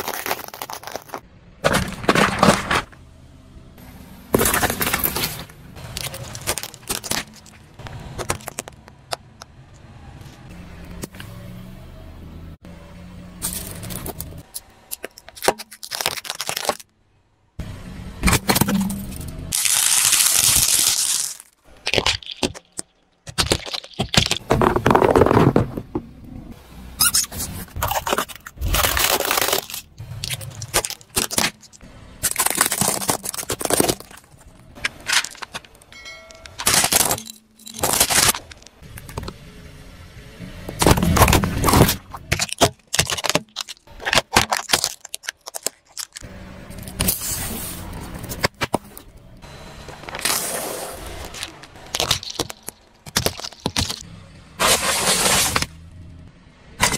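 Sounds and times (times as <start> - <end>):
tyre crushing plastic objects: 0.0 - 3.0, 4.3 - 9.3, 13.4 - 16.9, 18.2 - 26.1, 27.6 - 35.8, 36.5 - 39.3, 40.7 - 46.2, 49.9 - 54.0.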